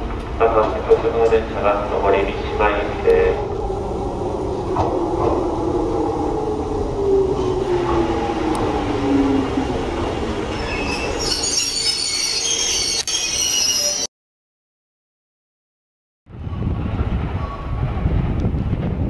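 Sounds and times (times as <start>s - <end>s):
train motor whine: 2.0s - 14.1s
brakes squealing: 7.4s - 14.1s.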